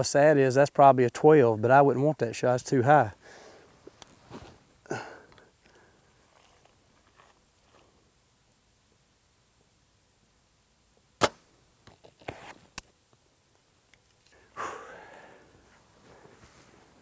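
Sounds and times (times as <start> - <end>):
arrow swishing: 11.2 - 11.4
bow string snap: 11.2 - 11.5.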